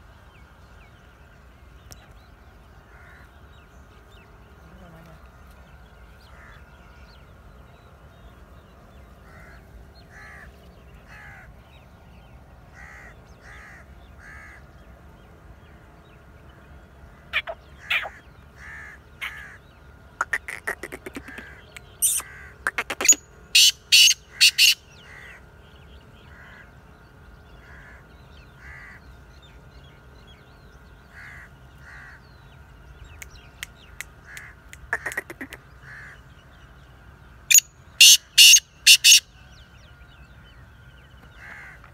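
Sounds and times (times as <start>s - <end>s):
bird harsh grating calls: 17.3s - 19.6s, 20.2s - 25.4s, 34.2s - 36.2s, 37.5s - 39.3s.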